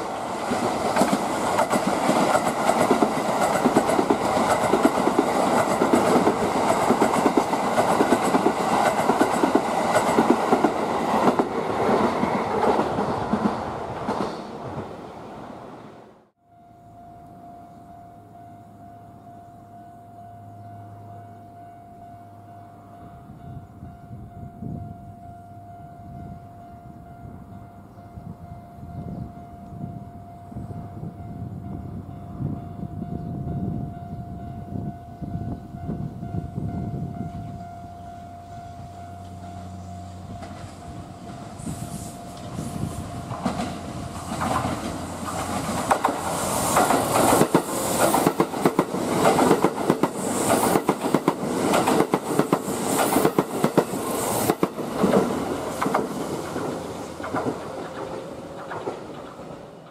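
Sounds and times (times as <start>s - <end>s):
electric train passing at speed: 0.0s - 59.9s
wheels clattering over rail joints: 43.3s - 59.9s.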